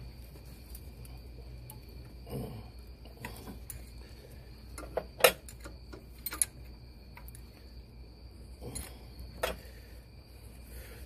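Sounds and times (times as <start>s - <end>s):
wrench clinking on metal fittings: 5.4s - 6.6s.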